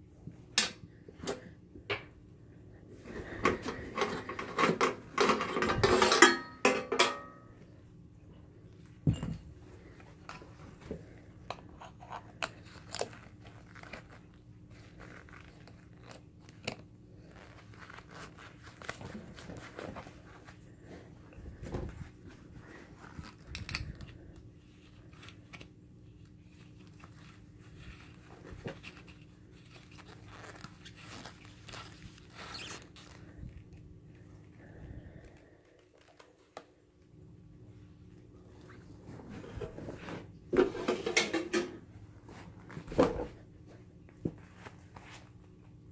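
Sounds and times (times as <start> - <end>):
gas mask parts clicking and rustling: 3.3 - 7.1, 10.0 - 20.6, 22.9 - 33.8.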